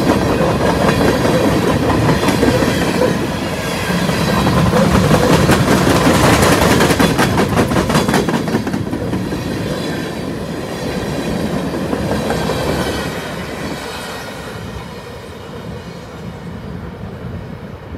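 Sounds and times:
train rumble: 0:00.0 - 0:17.9.

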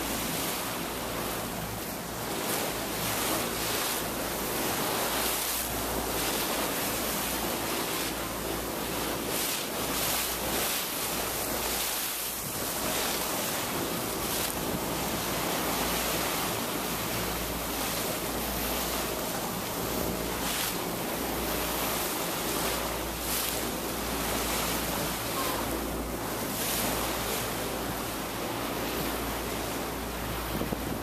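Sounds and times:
wind and water rushing: 0:00.0 - 0:31.0
wind buffeting microphone: 0:30.3 - 0:31.0.

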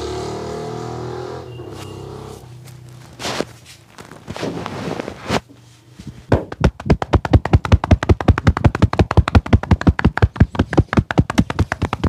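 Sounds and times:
fists drumming on a back: 0:06.3 - 0:12.0.

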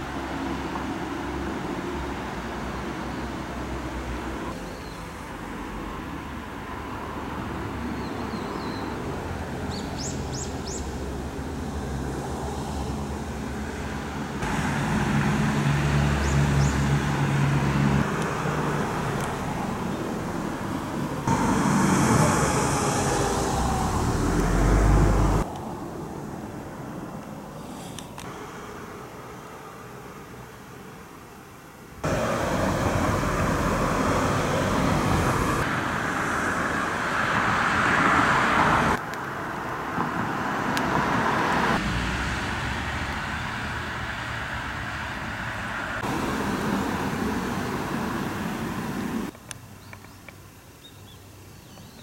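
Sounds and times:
road traffic: 0:00.0 - 0:52.0
bird chirps: 0:04.6 - 0:05.0, 0:08.0 - 0:09.0
vehicle passing: 0:09.0 - 0:27.2, 0:32.0 - 0:49.3.

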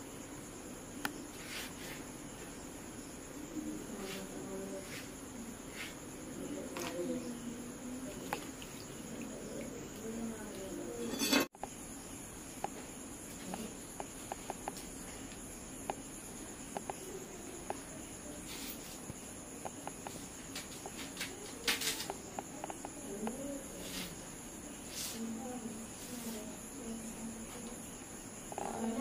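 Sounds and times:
insects trilling: 0:00.0 - 0:29.0.

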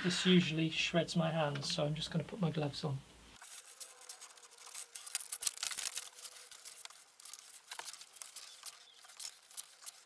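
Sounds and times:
sandpaper rustling and scraping: 0:03.4 - 0:10.0.

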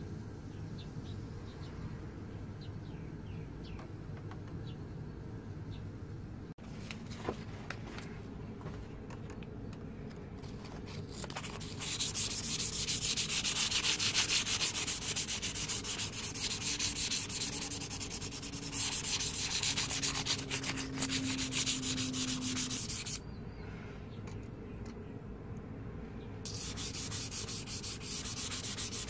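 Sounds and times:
sandpaper scraping steel blade: 0:11.0 - 0:23.2, 0:26.5 - 0:29.0.

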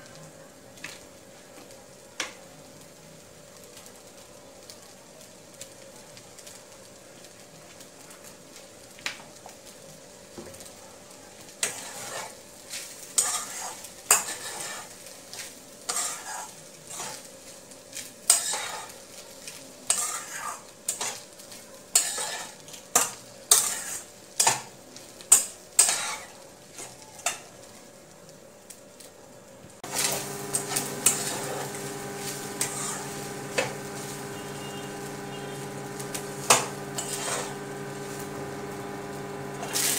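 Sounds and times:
faint sizzling: 0:00.0 - 0:39.9
metal spatula scraping pan: 0:11.6 - 0:12.4, 0:13.2 - 0:14.9, 0:15.9 - 0:17.2, 0:18.3 - 0:18.9, 0:19.9 - 0:21.1, 0:22.0 - 0:22.6, 0:29.9 - 0:38.0
steady mechanical hum: 0:27.7 - 0:39.9.

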